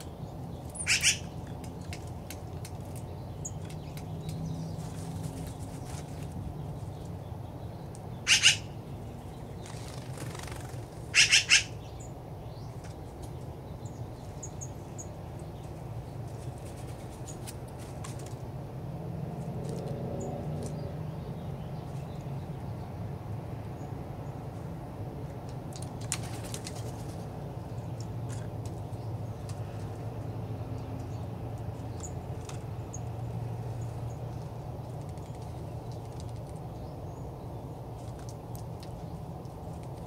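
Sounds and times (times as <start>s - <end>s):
crow calls: 0.8s - 1.3s, 8.2s - 8.8s, 11.1s - 11.8s.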